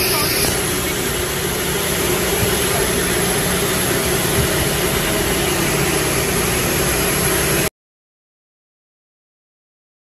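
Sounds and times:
jet aircraft noise: 0.0 - 7.7.

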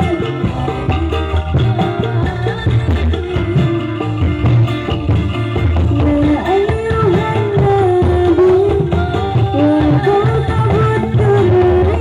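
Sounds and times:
loud live music with singing: 0.0 - 12.0.

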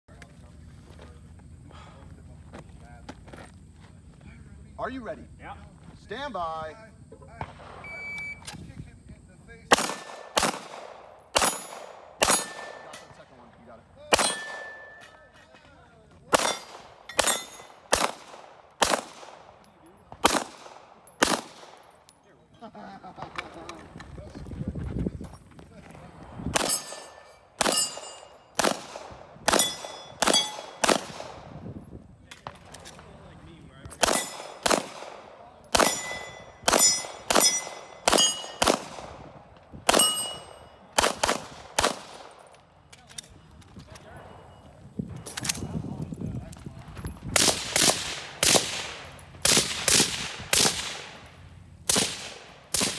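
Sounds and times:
pistol shots echoing: 7.4 - 8.3, 9.7 - 13.4, 14.0 - 15.3, 16.3 - 22.1, 26.5 - 31.7, 33.9 - 42.9, 47.3 - 52.9
steel plate ringing: 26.7 - 28.5, 35.8 - 38.6, 40.0 - 40.7.

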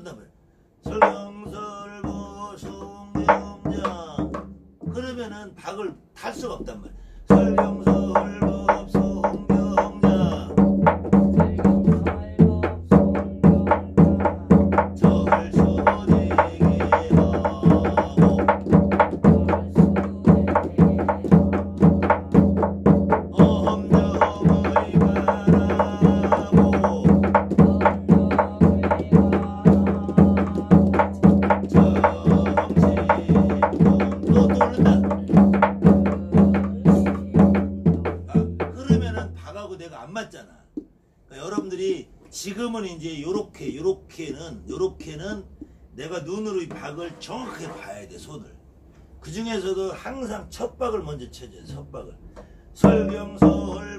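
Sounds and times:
drum beaten in steady rhythm: 0.8 - 5.2, 6.4 - 39.4, 52.8 - 53.9.

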